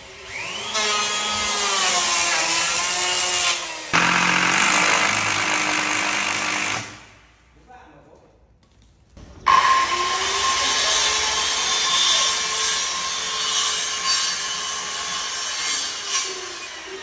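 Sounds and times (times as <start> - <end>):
electric saw cutting wood: 0.1 - 7.0.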